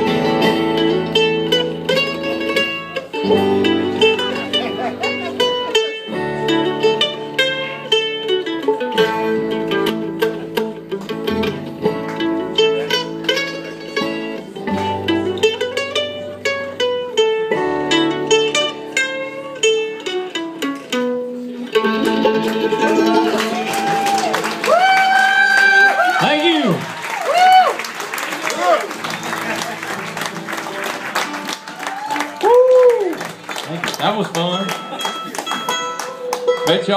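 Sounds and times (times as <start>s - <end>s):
bluegrass band playing: 0.0s - 36.9s
audience cheering: 22.8s - 35.6s.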